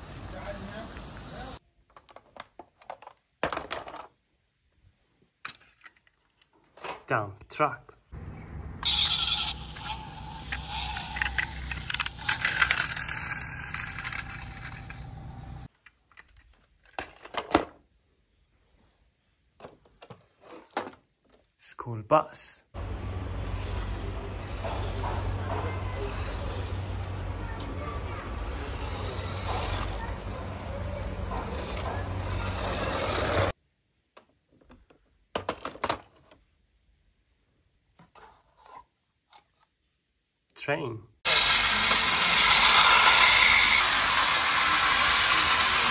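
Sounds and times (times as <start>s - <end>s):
toy truck wheels rolling on ground: 8.8s - 17.6s, 22.8s - 33.6s, 41.3s - 45.9s
toy vehicles clicking: 8.8s - 17.6s, 23.4s - 33.6s, 41.3s - 45.9s.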